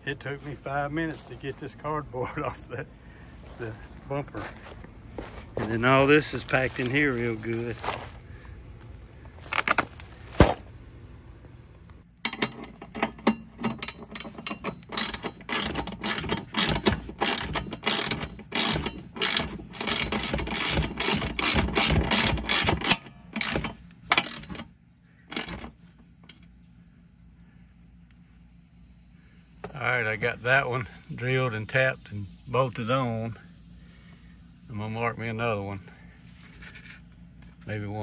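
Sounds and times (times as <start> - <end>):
ratchet wrench clicking: 12.3 - 24.6.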